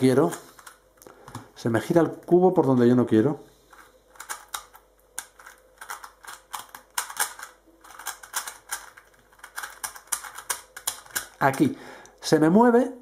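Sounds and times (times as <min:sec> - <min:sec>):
puzzle cube plastic clicks: 0:03.7 - 0:11.7.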